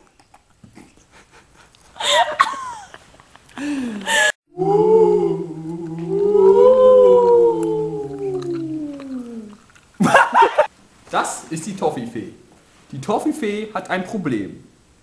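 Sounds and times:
loud vocal outburst: 4.5 - 9.6
low hum: 4.5 - 10.7
voices howling: 4.5 - 10.7.

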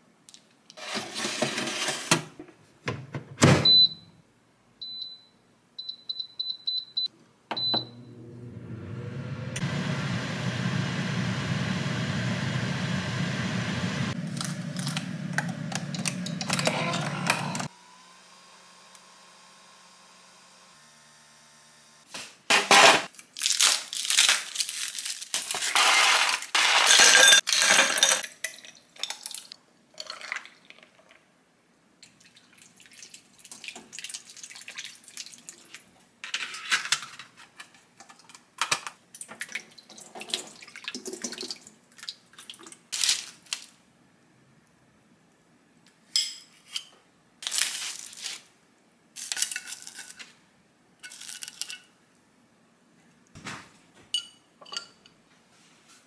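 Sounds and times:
water pouring: 30.0 - 31.2
dishes and glassware clattering: 54.1 - 55.1.

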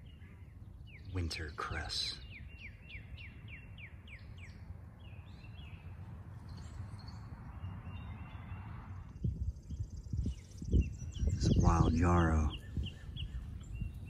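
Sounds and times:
bird whistling song: 2.0 - 5.9, 9.5 - 14.0
steady low rumble: 3.2 - 14.0.

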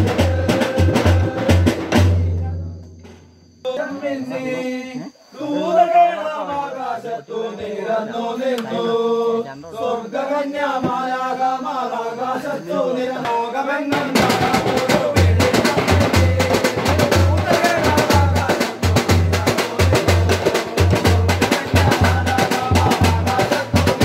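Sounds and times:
voices singing a carol: 0.0 - 2.7, 3.6 - 24.0
drums and percussion beat: 0.0 - 3.4, 10.7 - 11.2, 13.2 - 24.0.

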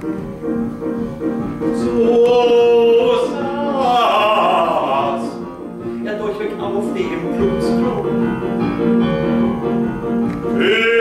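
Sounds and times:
piano accompaniment: 0.0 - 11.0
man singing: 1.7 - 5.5, 10.6 - 11.0.

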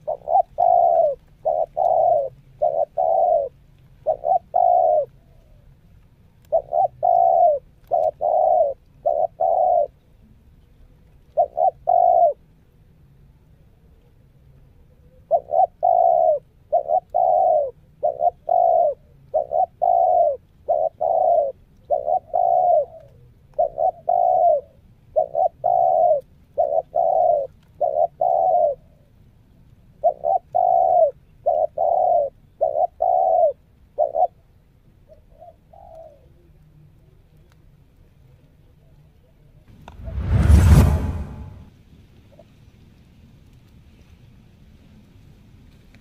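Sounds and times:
dove cooing: 0.0 - 5.7, 6.5 - 10.0, 11.4 - 12.4, 15.0 - 29.1, 30.0 - 34.5, 35.1 - 36.6.

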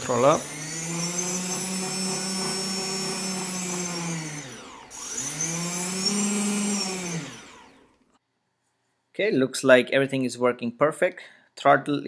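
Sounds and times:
electric motors whining: 0.0 - 8.0.

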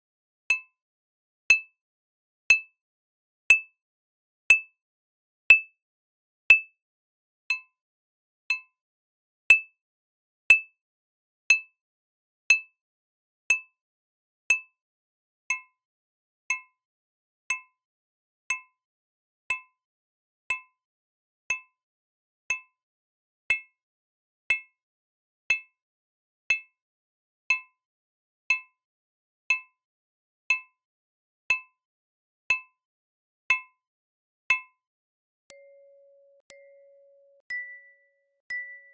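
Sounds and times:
synthesized plate strikes ringing: 35.5 - 38.9.

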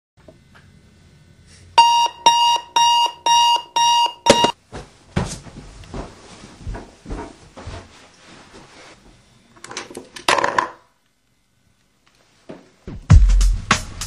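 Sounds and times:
alarm clock beeping: 1.8 - 4.6.

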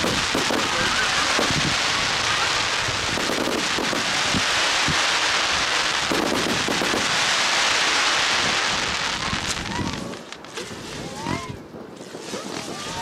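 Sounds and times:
deep firework bangs: 0.0 - 10.1
firework hiss: 0.0 - 11.3
fireworks crackling pops: 0.0 - 13.0.

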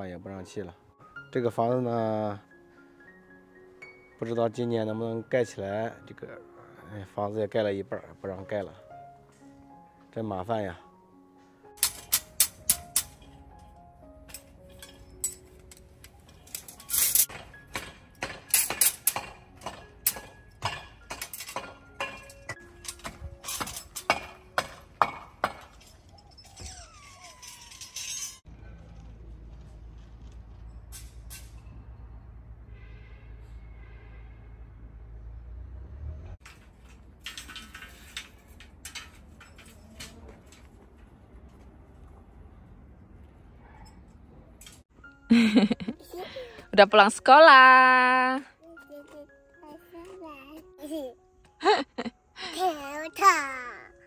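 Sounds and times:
metal tools clinking on rebar: 11.8 - 28.5, 36.4 - 40.8.

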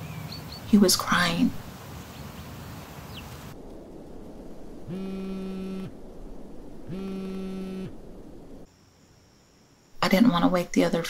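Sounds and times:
mobile phone vibrating: 4.9 - 5.9, 6.9 - 7.9.

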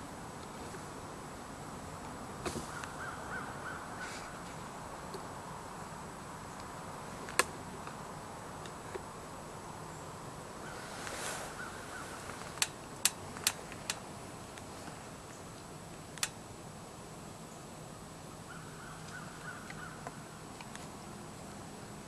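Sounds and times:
sharp clicks: 16.2 - 16.4.

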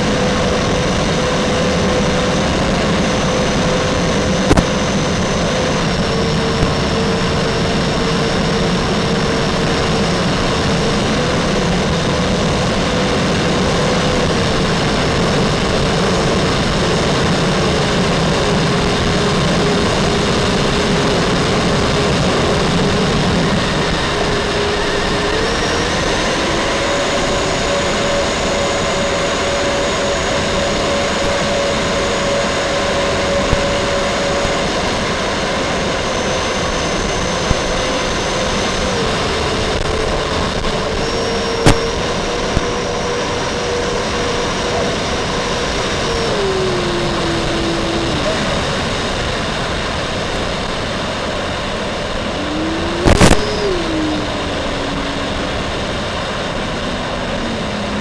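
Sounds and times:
electric fan whine: 0.0 - 58.0
steady rushing noise: 0.0 - 58.0
sharp click: 4.5 - 4.7.

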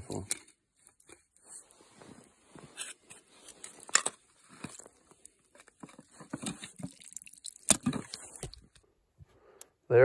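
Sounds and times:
ice crunching: 1.5 - 8.8.

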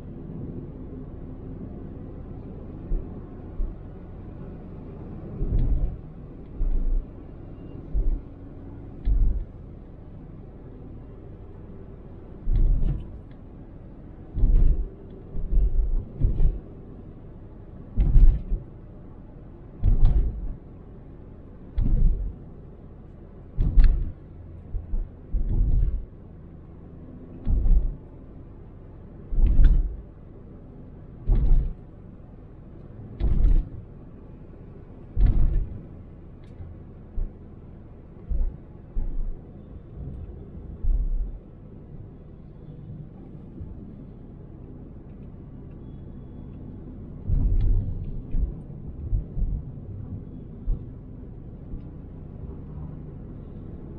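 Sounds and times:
low road rumble: 0.0 - 53.9
tyres thumping over road joints: 5.4 - 6.0, 9.0 - 9.6, 12.4 - 13.3, 14.2 - 16.8, 17.9 - 18.8, 19.7 - 20.7, 21.7 - 22.4, 23.5 - 26.2, 27.3 - 28.2, 29.2 - 30.1, 31.2 - 31.9, 33.1 - 33.9, 35.0 - 37.4, 38.2 - 41.4, 47.3 - 49.6.

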